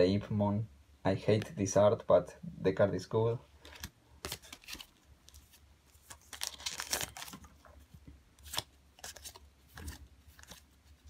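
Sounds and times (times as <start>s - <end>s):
foil wrapper tearing and crinkling: 4.2s - 7.5s.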